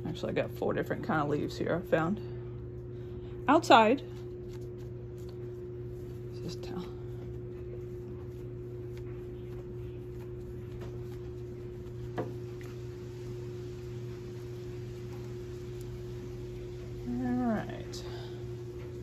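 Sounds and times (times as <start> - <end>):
low electrical hum: 0.0 - 19.0
cloth towel rustling and tapping: 7.2 - 12.9.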